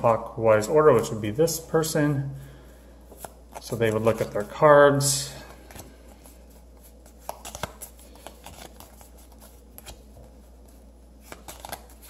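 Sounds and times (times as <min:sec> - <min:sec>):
playing cards flicking and snapping: 0:06.8 - 0:10.3, 0:11.2 - 0:12.0.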